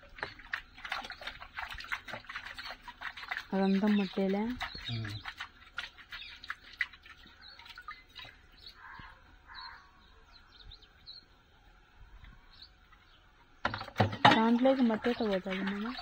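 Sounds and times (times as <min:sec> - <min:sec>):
bowl washed in tub of water: 0:00.0 - 0:09.5, 0:13.6 - 0:16.0
faint bird chirps: 0:03.6 - 0:05.4, 0:07.1 - 0:11.4.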